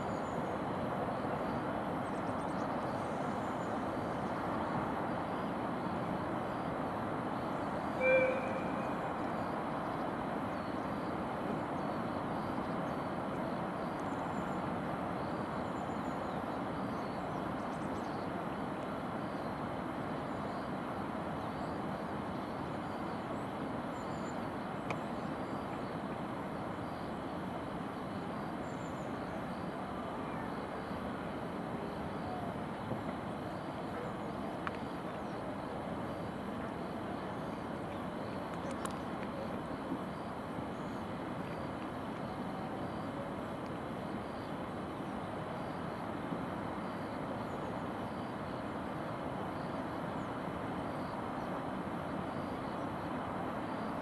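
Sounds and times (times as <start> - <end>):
distant city traffic hum: 0.0 - 16.1
faint high chirps: 7.9 - 9.6.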